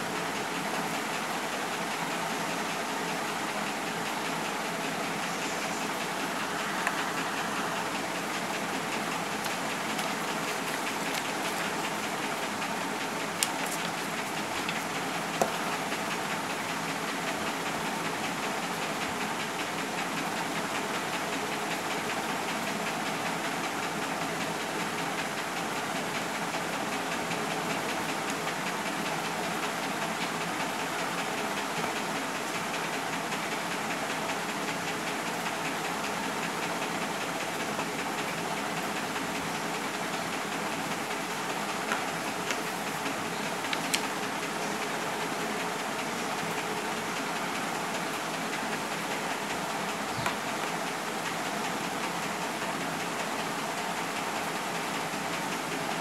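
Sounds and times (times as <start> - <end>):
steady rushing hiss: 0.0 - 56.0.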